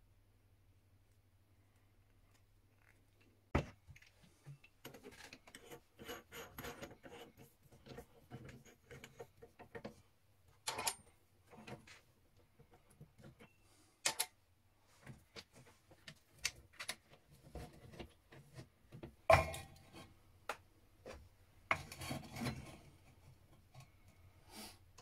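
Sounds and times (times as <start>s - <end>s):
wooden block set on metal table: 2.3s - 14.4s, 15.0s - 25.0s
wooden block scraping on metal: 21.7s - 23.0s.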